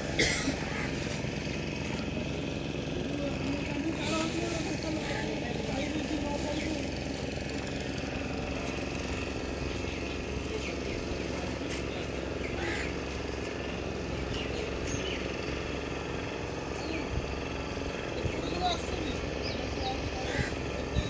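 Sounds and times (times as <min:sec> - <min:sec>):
low engine rumble: 0:00.0 - 0:21.0.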